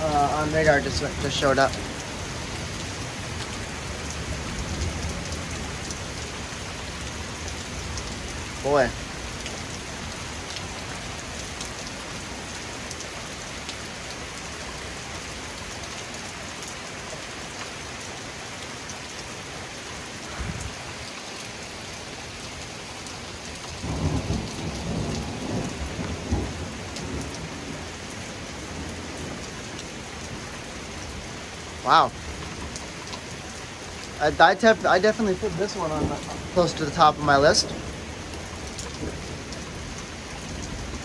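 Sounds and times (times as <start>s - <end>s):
thunder rumbling: 0.0s - 6.1s, 20.3s - 20.9s, 23.8s - 27.9s, 34.5s - 41.0s
heavy rain pouring: 0.0s - 41.0s.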